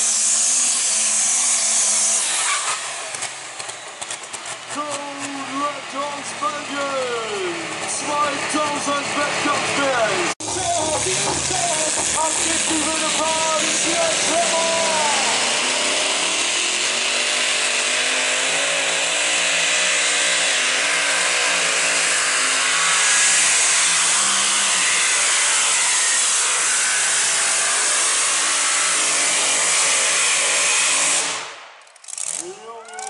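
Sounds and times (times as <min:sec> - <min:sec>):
engine running flat out: 0:00.2 - 0:33.0.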